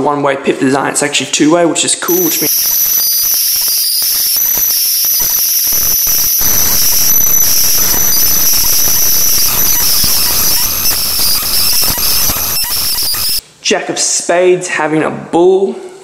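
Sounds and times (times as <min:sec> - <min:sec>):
high-pitched electrical whine: 0:02.1 - 0:13.4
static hiss: 0:02.1 - 0:13.4.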